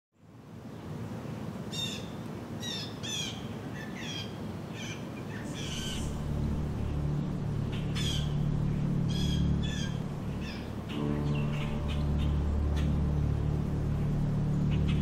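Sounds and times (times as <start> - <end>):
birds chirping: 1.8 - 15.0
low outdoor rumble: 5.4 - 15.0.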